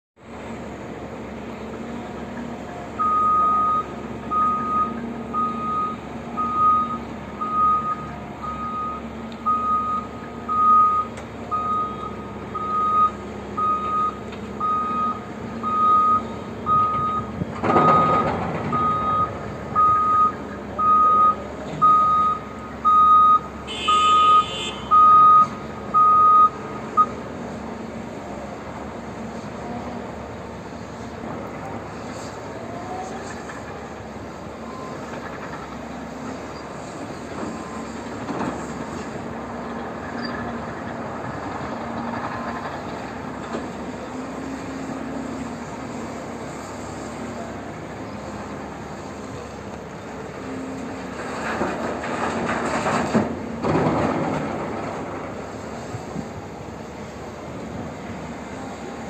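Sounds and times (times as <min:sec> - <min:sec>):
reversing alarm beeping: 0:03.0 - 0:27.2.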